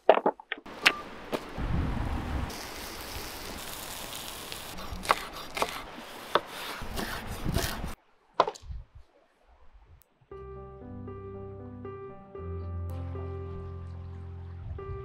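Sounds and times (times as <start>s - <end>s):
meat sizzling on hot stones: 2.5s - 6.3s
knife slicing onion on cutting board: 4.8s - 8.0s.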